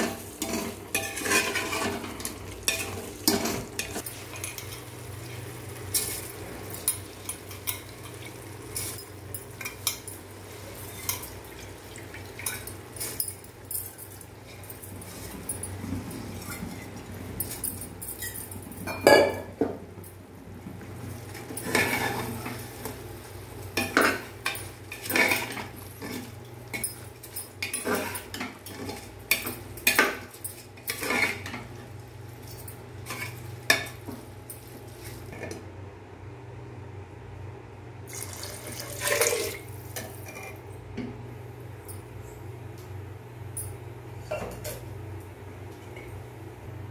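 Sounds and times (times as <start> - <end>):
ladle scraping metal pot: 0.0 - 4.8, 21.5 - 22.6.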